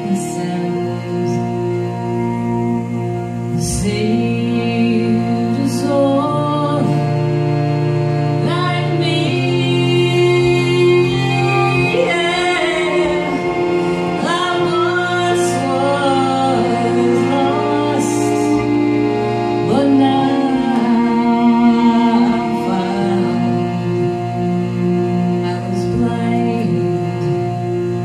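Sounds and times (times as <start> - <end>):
held instrumental drone: 0.0 - 28.0
woman singing a chant: 3.6 - 7.0, 8.4 - 13.6, 14.2 - 18.7, 19.6 - 23.7, 25.4 - 27.4.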